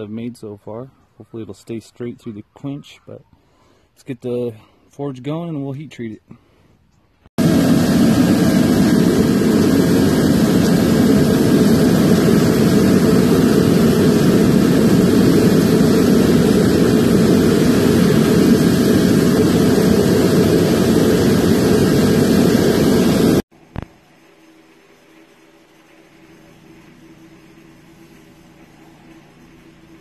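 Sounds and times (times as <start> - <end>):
faint motor whine: 7.4 - 30.0
vacuum blowing air: 7.4 - 30.0.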